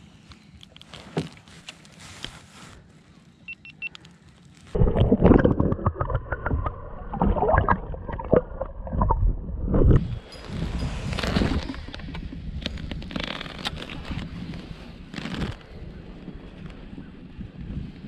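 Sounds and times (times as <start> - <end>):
muffled underwater gurgling: 4.8 - 10.1.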